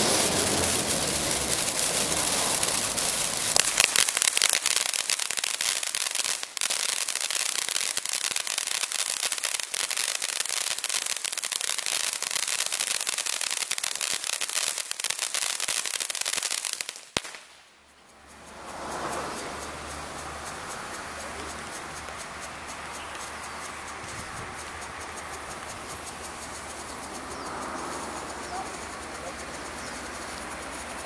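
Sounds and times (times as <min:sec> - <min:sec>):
sharp crack: 0:00.0 - 0:18.1
firework fountain hissing and crackling: 0:00.0 - 0:31.0.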